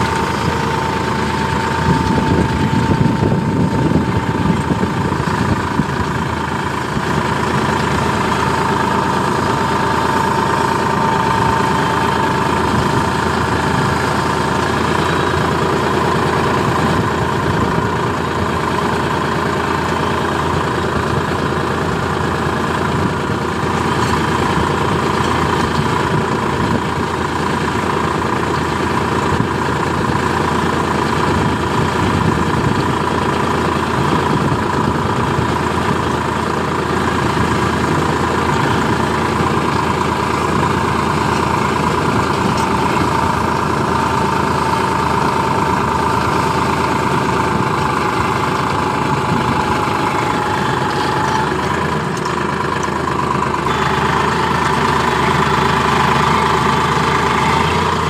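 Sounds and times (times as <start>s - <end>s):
steady whine: 0.0s - 18.8s
tractor diesel engine under load: 0.0s - 58.0s.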